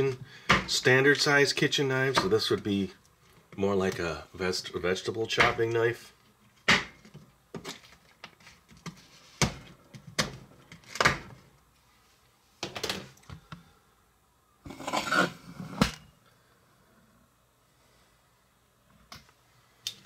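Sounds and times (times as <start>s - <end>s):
knife chopping on plastic board: 0.4s - 0.7s.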